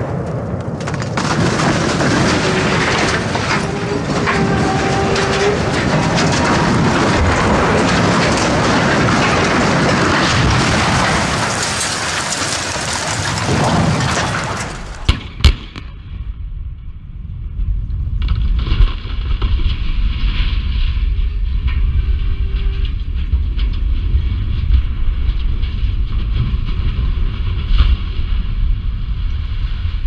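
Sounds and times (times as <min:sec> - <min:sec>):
sharp cracks: 0:00.0 - 0:16.0
smokestack crashing to ground: 0:00.0 - 0:16.2, 0:18.1 - 0:30.0
low rumble: 0:00.0 - 0:30.0
debris pattering and splashing: 0:00.8 - 0:15.1.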